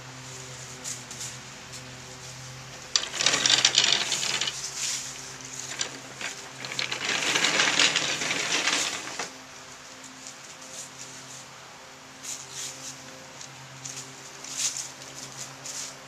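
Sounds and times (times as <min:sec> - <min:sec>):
wheels rolling over dry leaves: 0:02.9 - 0:09.4, 0:13.8 - 0:15.9.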